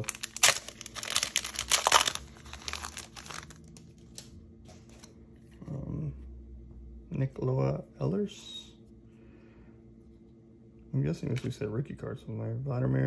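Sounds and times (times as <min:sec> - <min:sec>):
foil wrapper crinkling and tearing: 0:00.0 - 0:04.3.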